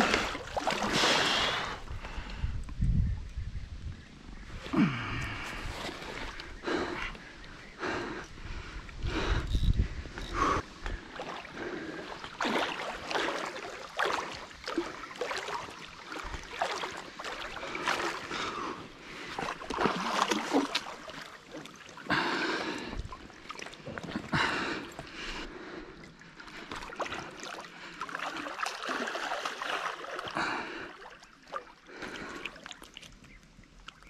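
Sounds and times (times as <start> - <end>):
water splashing from thrashing fish: 0.0 - 1.6, 11.1 - 18.6, 19.2 - 25.0, 26.5 - 33.2.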